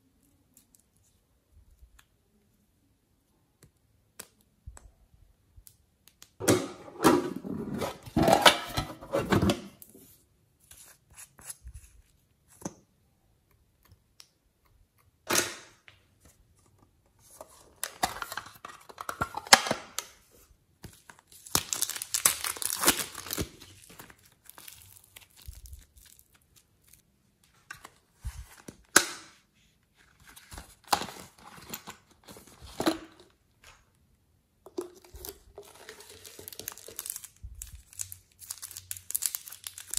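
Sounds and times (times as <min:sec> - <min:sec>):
clay and plastic crinkling squishing: 0:17.6 - 0:33.9, 0:34.6 - 0:39.9.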